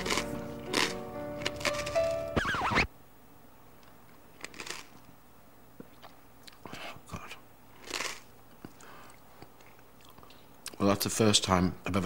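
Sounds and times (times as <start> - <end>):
person chewing with wet clicks: 5.8 - 6.7, 7.8 - 10.8.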